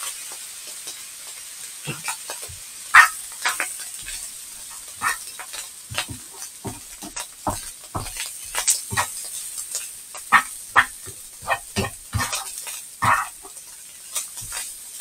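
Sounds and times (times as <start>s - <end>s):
rice sizzling in a frying pan: 0.0s - 15.0s
utensil scraping and knocking pan: 3.5s - 9.4s, 10.2s - 13.5s.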